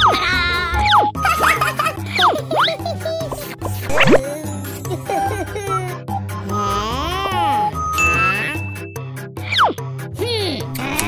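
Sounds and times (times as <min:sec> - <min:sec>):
playful music with bass line: 0:00.0 - 0:11.0
sliding cartoon sound effects: 0:03.9 - 0:04.2.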